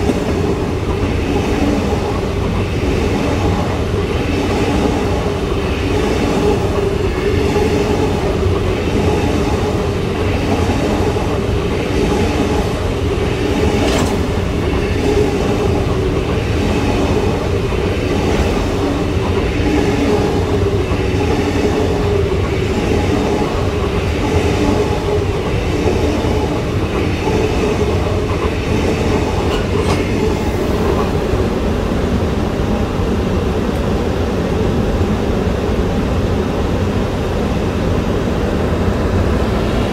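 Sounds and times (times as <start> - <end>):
train wheels rumbling on rail: 0.0 - 39.9
wheels clacking over rail joints: 13.4 - 31.2.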